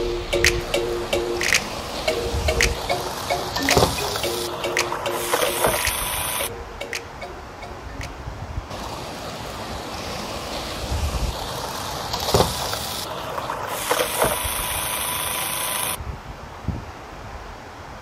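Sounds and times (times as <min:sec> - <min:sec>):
wind on microphone: 0:00.0 - 0:03.1, 0:10.8 - 0:11.4, 0:16.0 - 0:17.6
sharp clicks: 0:00.3 - 0:07.3
toy train mechanical hum: 0:01.1 - 0:06.5, 0:08.7 - 0:16.0.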